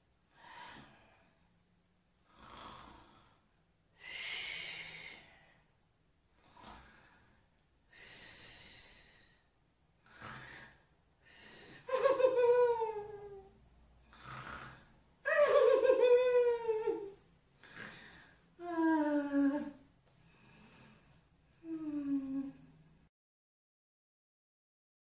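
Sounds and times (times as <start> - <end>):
woman breathing heavily: 4.0 - 5.7, 6.4 - 9.5, 10.1 - 12.5, 17.6 - 22.7
woman sighing: 21.6 - 22.7.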